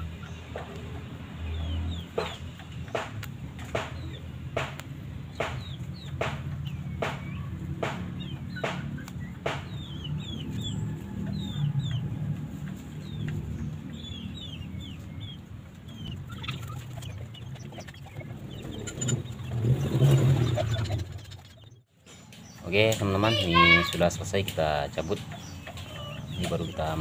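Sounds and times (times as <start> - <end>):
fowl clucking: 1.6 - 13.4, 14.0 - 21.7, 23.3 - 27.0
high falling chirps: 13.9 - 24.3.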